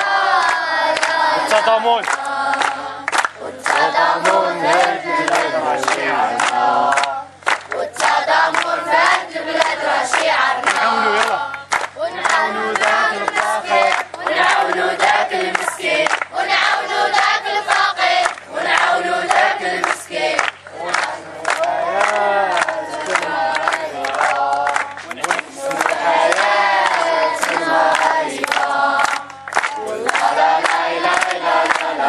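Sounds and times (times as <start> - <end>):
hand claps: 0.0 - 8.8, 9.6 - 32.0
children chanting in unison: 0.0 - 32.0.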